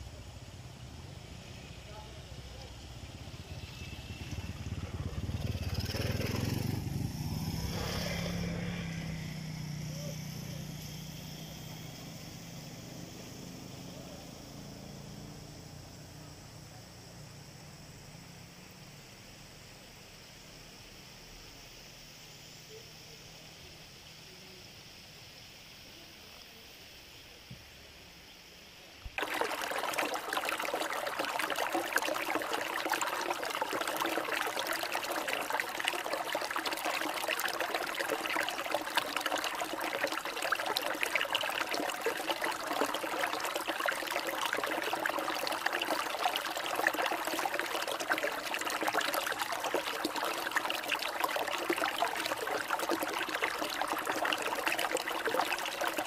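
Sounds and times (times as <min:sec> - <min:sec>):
stream babbling over boulders: 0:29.1 - 0:56.0.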